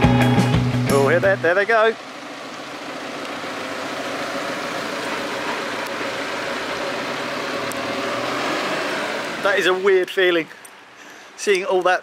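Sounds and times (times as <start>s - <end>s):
truck engines running: 0.0s - 12.0s.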